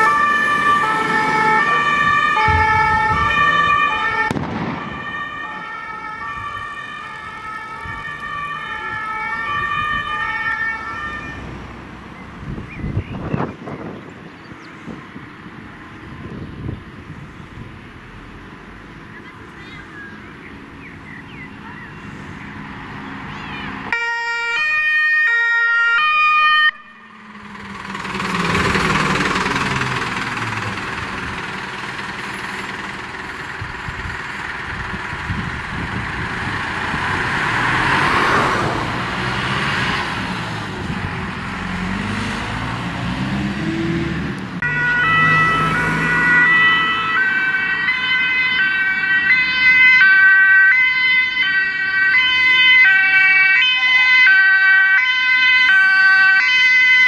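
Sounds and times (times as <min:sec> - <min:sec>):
two-tone fire engine siren: 0:00.0 - 0:11.8, 0:23.4 - 0:42.8, 0:44.6 - 0:57.0
road noise: 0:00.0 - 0:57.0
truck diesel engine: 0:00.0 - 0:57.0.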